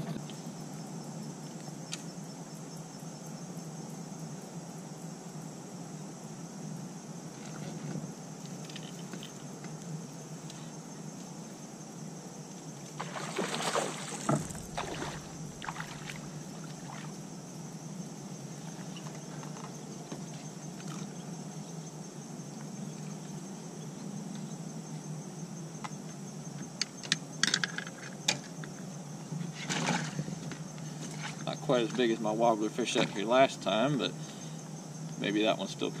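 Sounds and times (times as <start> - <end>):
fish splashing at water surface: 13.0 - 17.1
steady low hum: 13.0 - 19.1
knocks and clatters on boat deck: 14.1 - 16.2.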